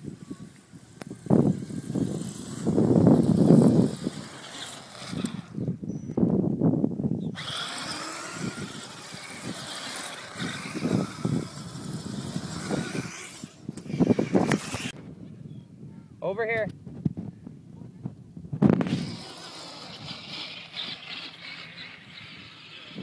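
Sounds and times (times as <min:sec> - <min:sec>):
toy car motor whine: 0:00.0 - 0:05.7, 0:07.3 - 0:15.0, 0:18.8 - 0:23.0
low rumbling: 0:00.0 - 0:16.0.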